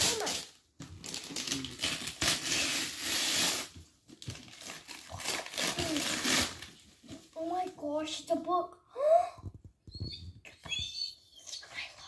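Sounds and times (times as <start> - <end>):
wrapping paper tearing and crinkling: 0.0 - 7.5.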